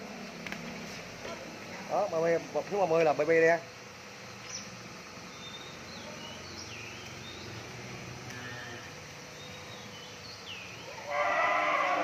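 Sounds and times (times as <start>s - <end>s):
small birds chirping: 4.2s - 11.1s.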